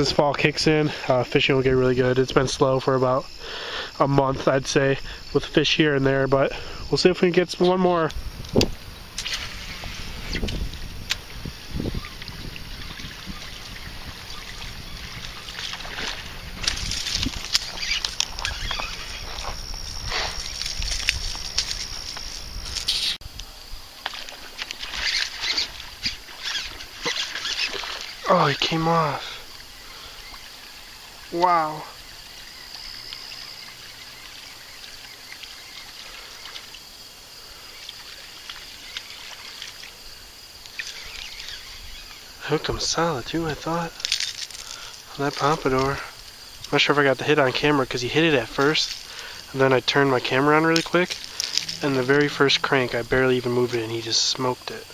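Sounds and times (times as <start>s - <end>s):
faint high insect drone: 0.0s - 54.9s
wind buffeting microphone: 7.9s - 23.9s
lure splashing on water: 8.6s - 23.2s, 24.0s - 37.0s, 47.9s - 54.0s.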